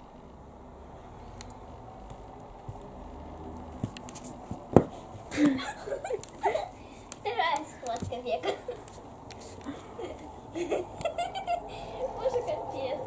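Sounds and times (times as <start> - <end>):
person speaking: 6.4 - 10.2.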